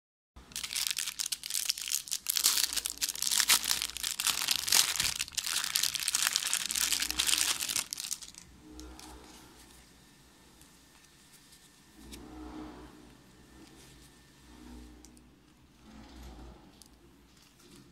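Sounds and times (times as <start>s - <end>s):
plastic bag crinkling: 0.4s - 8.5s.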